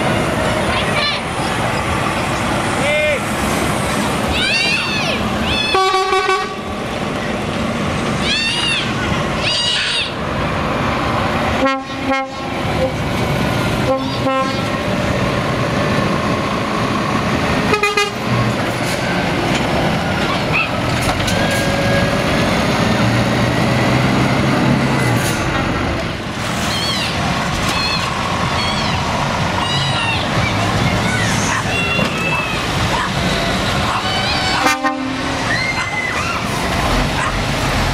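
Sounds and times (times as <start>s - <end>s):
diesel truck engines under load: 0.0s - 37.9s
air horn blasts: 5.7s - 6.7s, 11.6s - 13.0s, 13.8s - 14.7s, 17.7s - 18.2s, 34.6s - 35.4s.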